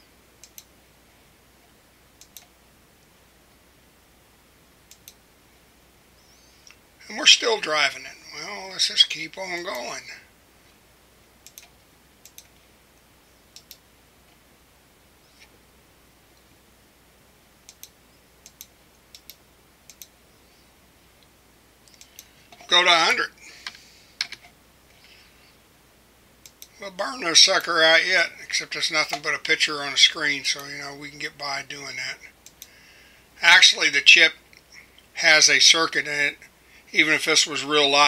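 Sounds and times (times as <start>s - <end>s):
faint low hum: 0.0s - 38.0s
faint steady hiss: 0.0s - 38.0s
computer mouse clicking: 0.4s - 0.7s, 2.2s - 2.5s, 4.9s - 5.2s, 11.4s - 12.6s, 13.5s - 14.4s, 17.7s - 20.2s, 21.8s - 22.7s, 26.4s - 26.8s, 32.4s - 32.7s
computer mouse and keyboard clicks: 11.4s - 12.6s.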